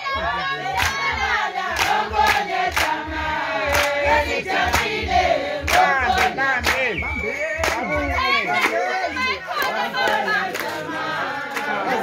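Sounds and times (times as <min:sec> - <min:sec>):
many voices singing together: 0:00.0 - 0:12.0
steady drum beat: 0:00.9 - 0:08.5.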